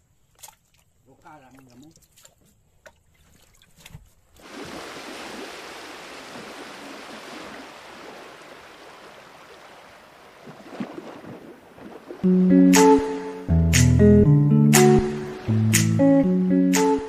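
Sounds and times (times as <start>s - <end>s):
hand splashing in shallow water: 4.4s - 12.2s
rushing liquid splash: 4.4s - 12.3s.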